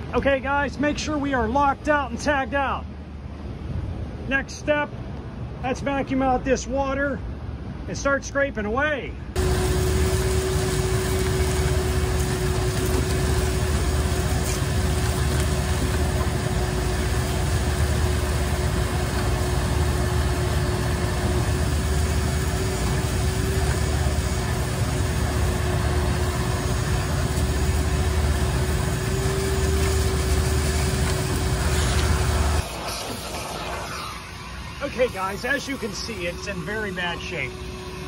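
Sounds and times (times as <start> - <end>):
shop vacuum motor whine: 9.4 - 38.0
vacuum sucking water: 9.4 - 38.0.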